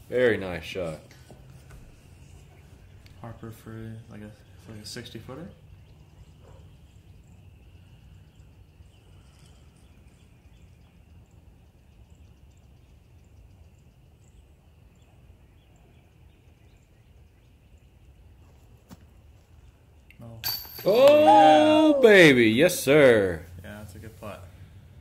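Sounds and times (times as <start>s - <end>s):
faint high chirping: 2.0s - 18.6s.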